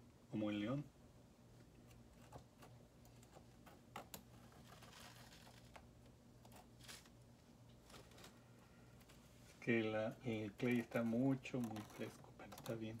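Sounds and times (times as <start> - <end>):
low steady hum: 0.0 - 13.0
needle tool scratching clay: 1.9 - 5.8, 10.6 - 13.0.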